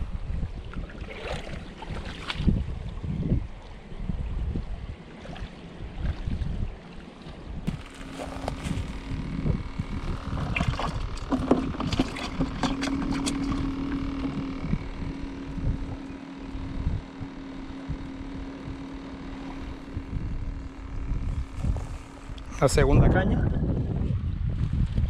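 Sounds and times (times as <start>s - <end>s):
steady hum: 0.0s - 25.0s
wind rumble on microphone: 0.0s - 25.0s.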